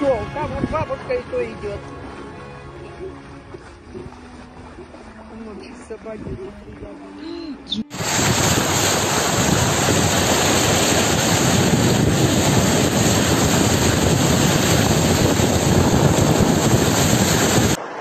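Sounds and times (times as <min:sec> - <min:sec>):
wind buffeting microphone: 0:00.0 - 0:01.2, 0:05.6 - 0:07.2, 0:07.9 - 0:17.8
floodwater rushing and splashing: 0:00.0 - 0:18.0.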